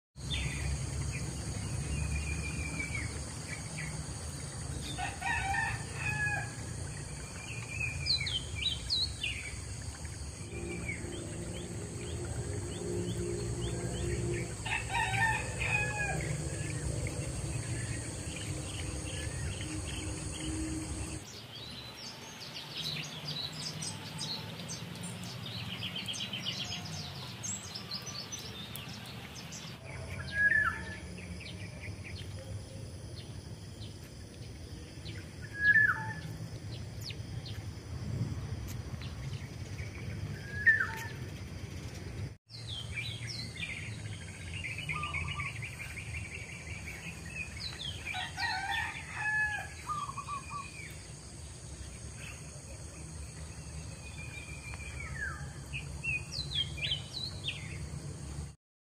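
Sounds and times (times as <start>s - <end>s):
high insect drone: 0.2s - 21.3s
small birds chirping and trilling: 39.0s - 58.0s
bird warbling song: 39.8s - 51.0s.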